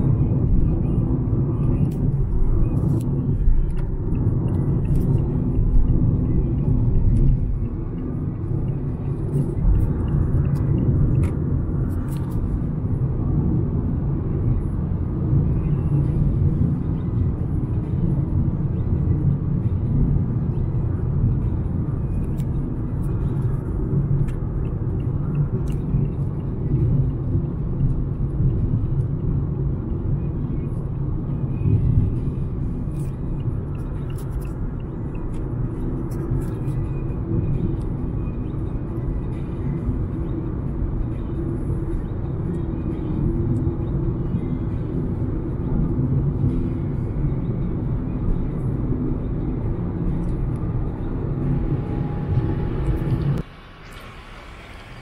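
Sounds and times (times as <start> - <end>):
car tyres and engine rumble: 0.0 - 55.0.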